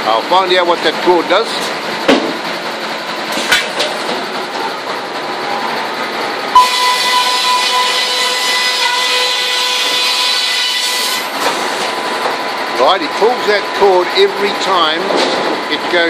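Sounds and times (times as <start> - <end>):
mill machinery running: 0.0 - 16.0
machinery clanks: 0.1 - 16.0
sudden knock: 2.1 - 2.4.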